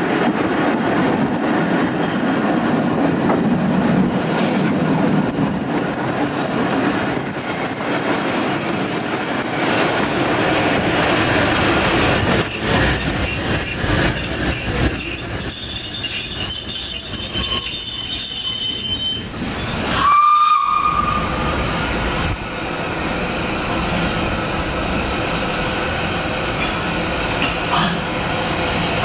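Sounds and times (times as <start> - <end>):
steam train running: 0.0 - 29.0
train whistle: 15.6 - 21.6.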